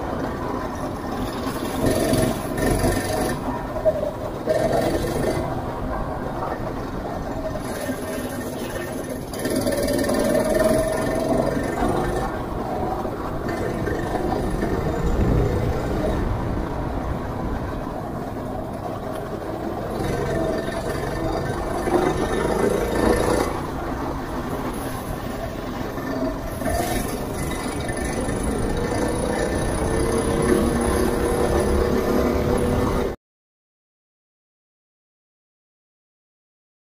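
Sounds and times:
go-kart engine revving: 0:00.9 - 0:05.8, 0:07.3 - 0:16.9, 0:18.8 - 0:33.2.

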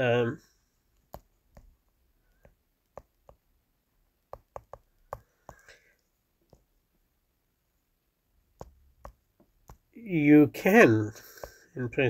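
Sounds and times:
stylus tapping on touchscreen: 0:01.0 - 0:03.6, 0:04.2 - 0:06.7, 0:08.5 - 0:10.0, 0:11.2 - 0:11.7.

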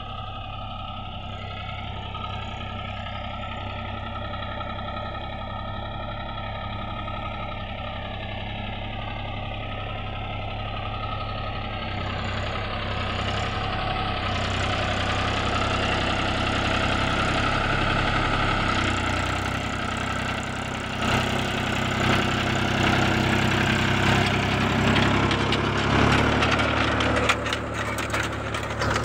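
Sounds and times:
tractor diesel engine running: 0:00.0 - 0:29.0
rattling clicks: 0:24.9 - 0:29.0.

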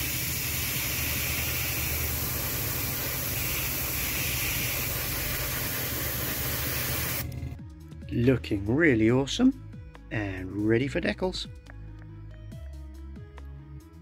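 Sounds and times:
airbrush spraying hiss: 0:00.0 - 0:07.2.

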